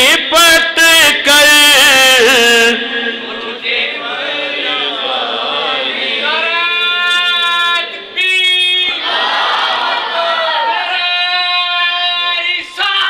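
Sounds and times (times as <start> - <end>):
man singing unaccompanied: 0.0 - 3.7.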